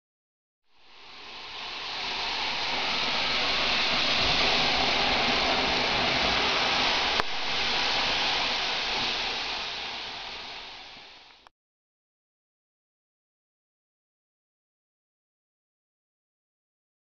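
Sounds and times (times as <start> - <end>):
rushing hiss: 0.7 - 11.5.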